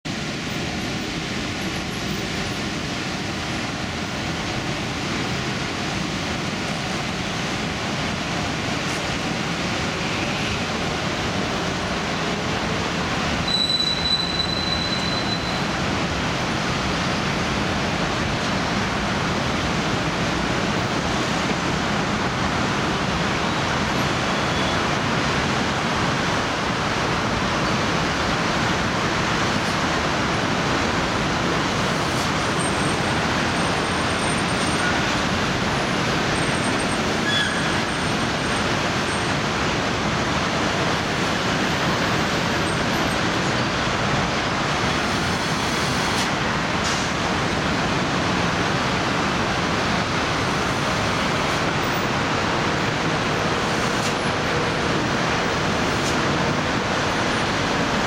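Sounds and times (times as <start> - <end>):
traffic engine noise: 0.0 - 58.0
high thin squeal: 13.4 - 15.7, 36.7 - 38.1
tyre hiss on wet road: 29.2 - 39.3, 44.4 - 48.3, 49.0 - 57.9.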